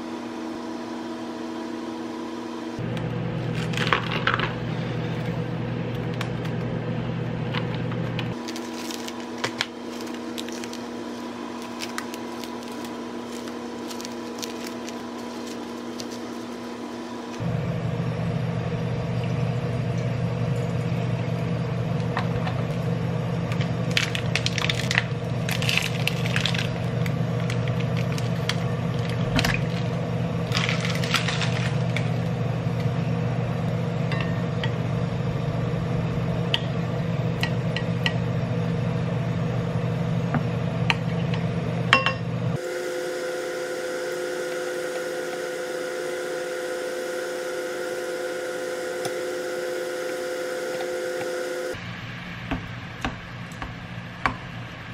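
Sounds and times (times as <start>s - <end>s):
steady low hum: 0.0s - 54.9s
higher-toned hum: 40.3s - 52.5s.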